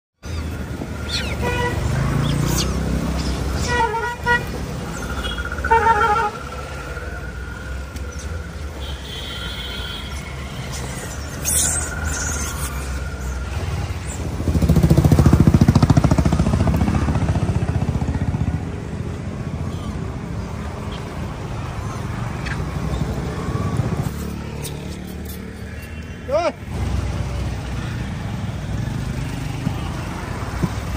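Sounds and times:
traffic engine rumble: 0.2s - 30.9s
vehicle passing close: 0.3s - 8.8s, 10.1s - 25.6s.

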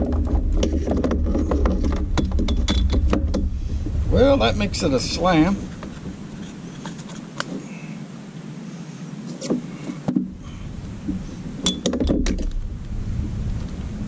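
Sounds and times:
low rumble: 0.0s - 7.2s, 10.3s - 14.0s.

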